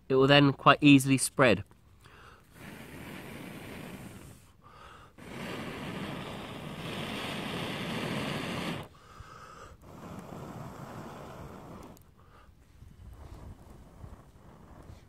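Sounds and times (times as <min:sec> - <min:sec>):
person blowing air: 0:02.0 - 0:12.6.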